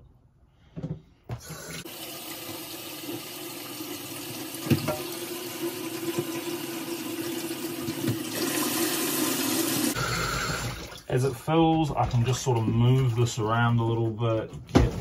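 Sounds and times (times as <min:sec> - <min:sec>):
tap running into sink: 0:04.2 - 0:05.2.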